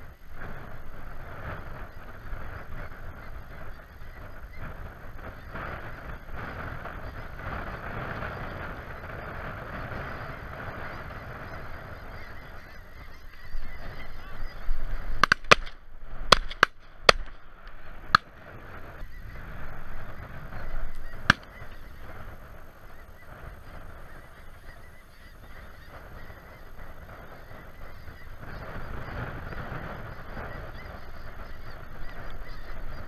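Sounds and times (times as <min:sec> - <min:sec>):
geese honking: 0:00.0 - 0:33.0
shotgun shots: 0:15.2 - 0:17.4.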